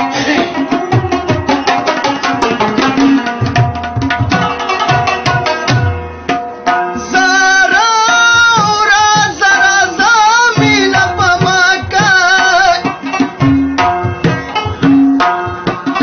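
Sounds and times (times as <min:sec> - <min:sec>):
tabla drumming: 0:00.0 - 0:16.0
person singing folk melody: 0:06.9 - 0:13.2.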